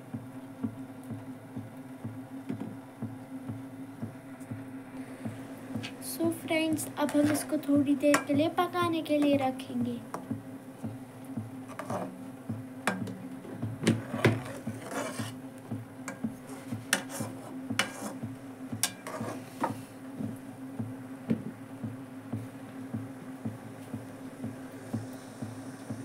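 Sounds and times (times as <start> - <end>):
low steady hum: 0.0 - 26.0
metal spoon scraping metal pan: 14.4 - 15.4, 16.5 - 18.2, 18.8 - 19.4.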